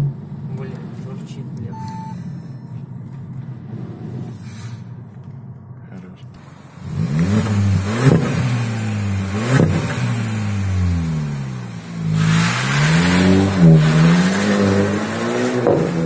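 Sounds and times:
exhaust cracks: 5.2s - 16.0s
car engine revving: 6.4s - 16.0s.

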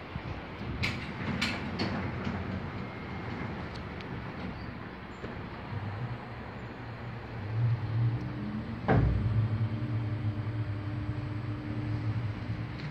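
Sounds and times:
lift mechanical hum: 0.0s - 12.9s
lift clunk: 8.8s - 9.7s.

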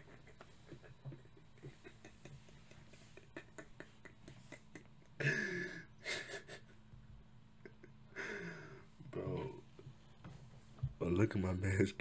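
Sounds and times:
man gasping: 8.2s - 8.9s.

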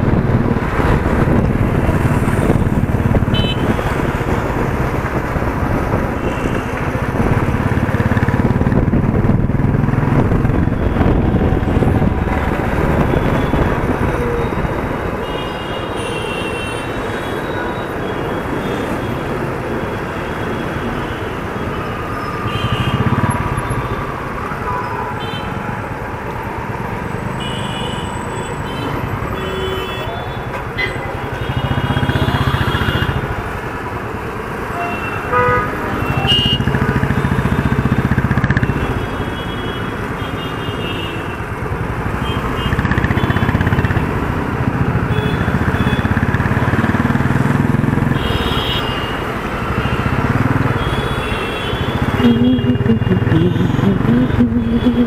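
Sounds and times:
road noise: 0.0s - 55.0s
car horns tooting: 3.3s - 4.1s, 34.7s - 41.4s, 48.1s - 55.0s
motorcycle engine revving: 42.6s - 48.4s, 49.5s - 51.2s, 51.8s - 55.0s.

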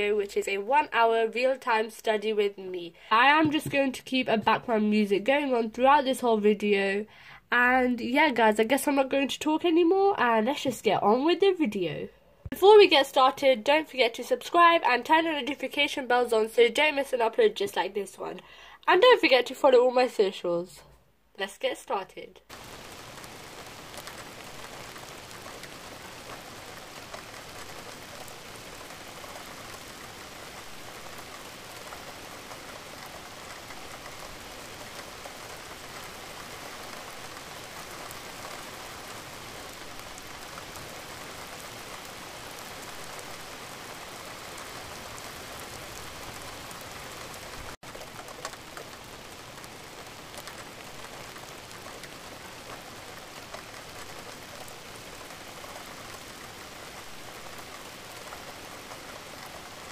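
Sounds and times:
steady falling rain: 0.0s - 20.2s, 22.4s - 59.9s.

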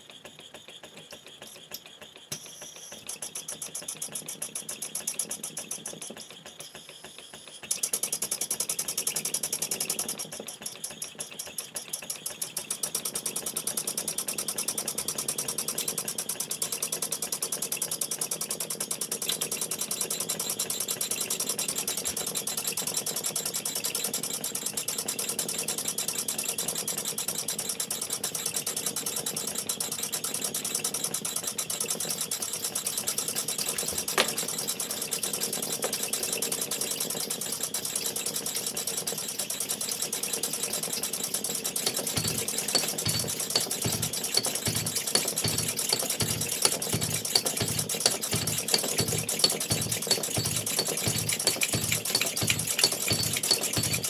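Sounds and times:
model steam engines chuffing: 31.9s - 54.0s.

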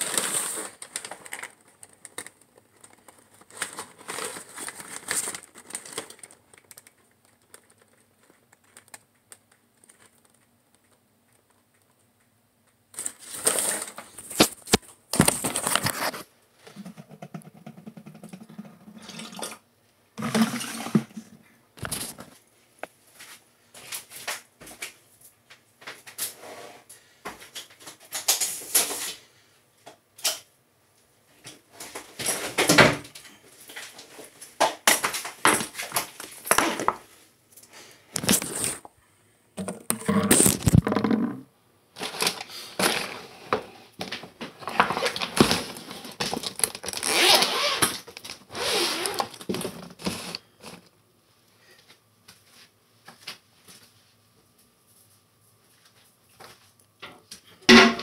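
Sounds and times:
objects being handled: 0.0s - 19.4s, 31.5s - 39.0s, 39.6s - 41.4s.

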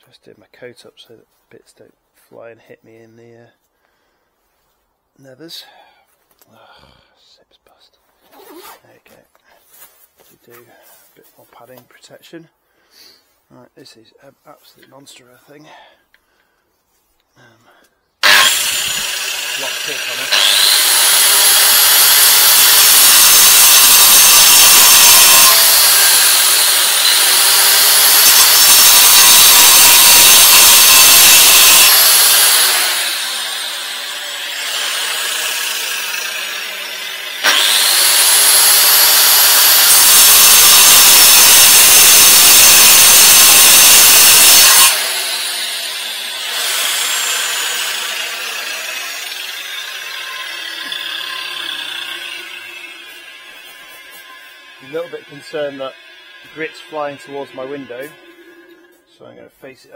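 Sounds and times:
angle grinder cutting concrete: 18.2s - 59.9s.

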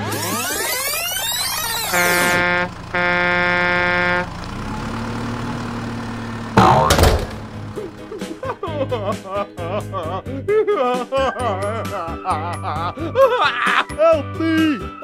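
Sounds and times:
steady engine hum: 1.2s - 10.4s
truck air horn blasts: 1.8s - 4.4s
toy truck crashing over: 6.6s - 7.6s.

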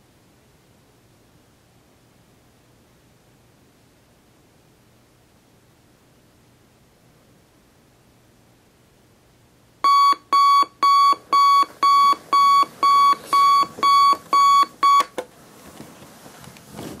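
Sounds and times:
alarm clock beeping: 9.9s - 15.1s.

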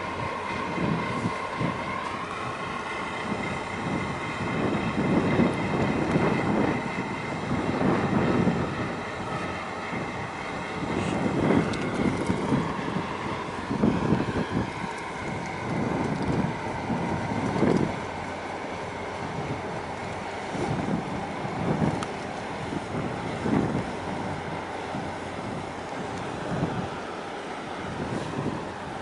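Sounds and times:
low rumble of ships: 0.0s - 29.0s
wind buffeting microphone: 0.0s - 29.0s.

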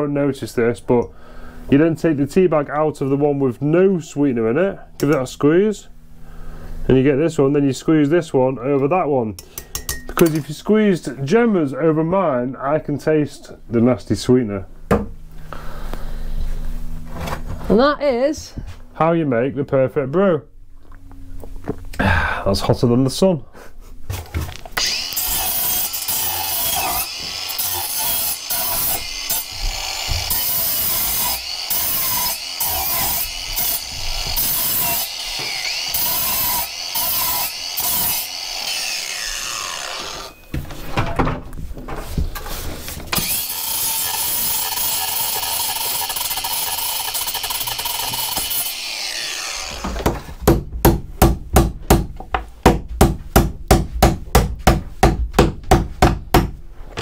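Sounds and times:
angle grinder cutting wood: 24.8s - 40.4s, 43.1s - 50.2s.

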